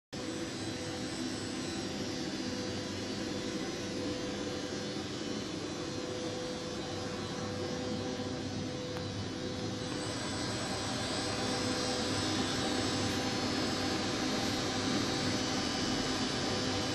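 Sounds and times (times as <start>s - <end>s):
faint high whine: 0.2s - 16.9s
machine hum and whir: 0.2s - 16.9s.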